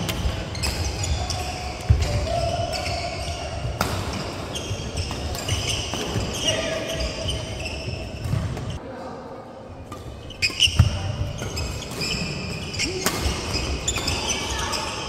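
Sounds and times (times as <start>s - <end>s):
shoe squeaks: 4.2s - 8.8s, 10.2s - 15.0s.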